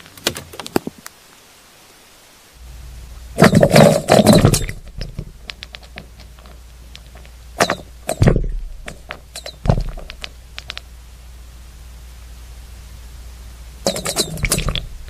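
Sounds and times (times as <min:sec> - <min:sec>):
low hum: 0:02.6 - 0:15.0
heavy thumps: 0:03.4 - 0:06.6, 0:07.6 - 0:10.8
sharp clicks and knocks: 0:03.4 - 0:10.9, 0:13.9 - 0:15.0.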